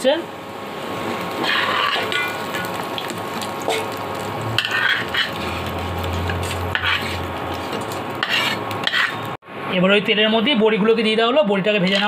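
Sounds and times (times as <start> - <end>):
oil sizzling in a pan: 0.0 - 9.4
metal spatula scraping a pan: 1.3 - 2.8, 4.6 - 9.4, 11.8 - 12.0.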